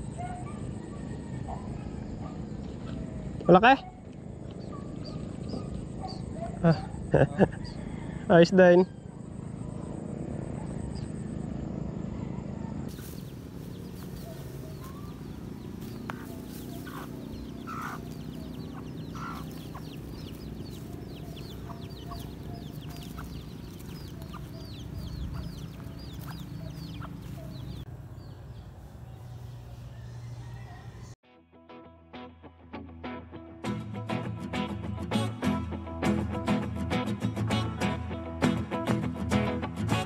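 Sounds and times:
chickens clucking: 0:12.9 - 0:31.2.

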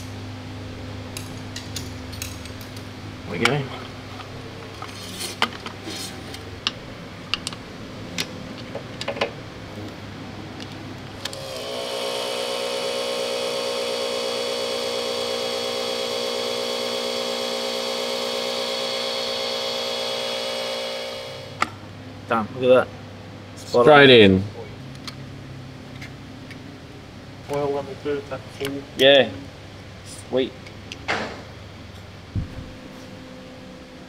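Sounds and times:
motor whine: 0:11.2 - 0:21.7.

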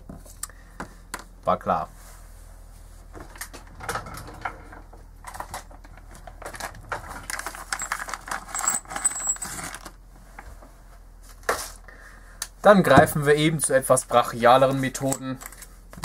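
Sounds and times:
small metal objects clinking: 0:07.3 - 0:09.9.

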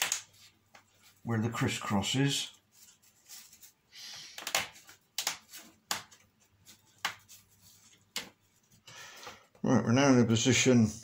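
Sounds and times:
soft rubbing of wood: 0:02.4 - 0:03.9.

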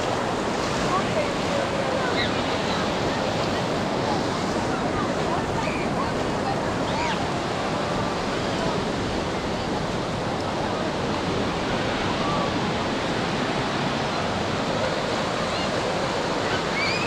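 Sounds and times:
waves breaking on sand: 0:00.0 - 0:17.0.

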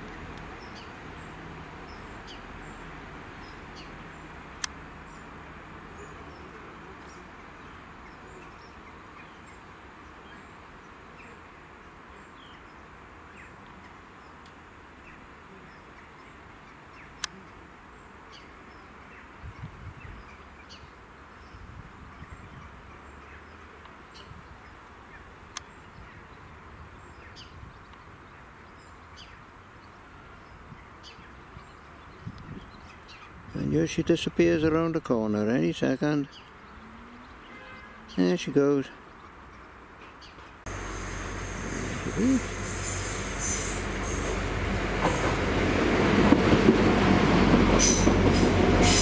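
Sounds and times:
distant train rumble: 0:40.7 - 0:49.0
insects humming: 0:40.7 - 0:49.0
faint bird chirps: 0:41.6 - 0:42.6.

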